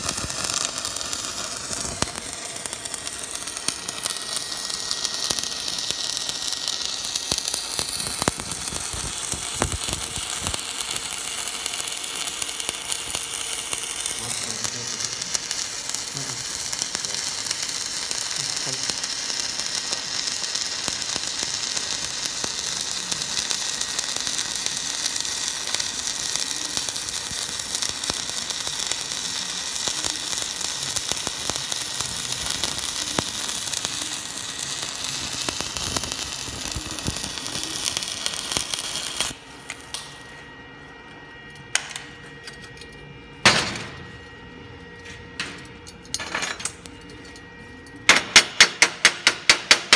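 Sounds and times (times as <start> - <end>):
welding arc crackling and hissing: 0.0 - 40.5, 48.0 - 49.9.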